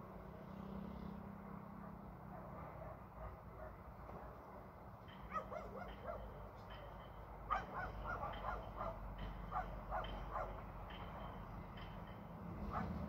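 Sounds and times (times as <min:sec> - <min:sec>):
dog barking: 0:02.3 - 0:04.4, 0:05.3 - 0:06.4, 0:07.5 - 0:10.6, 0:12.7 - 0:13.0.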